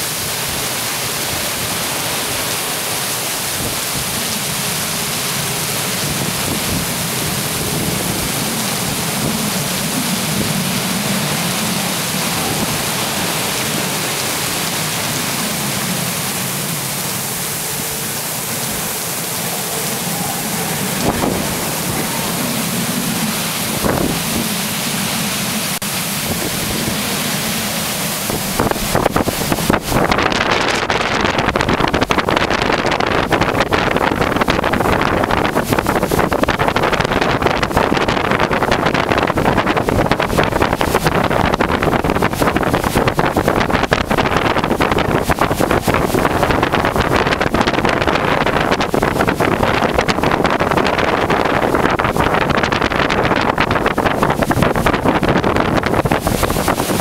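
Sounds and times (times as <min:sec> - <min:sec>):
heavy rain hissing: 0:00.0 - 0:57.0.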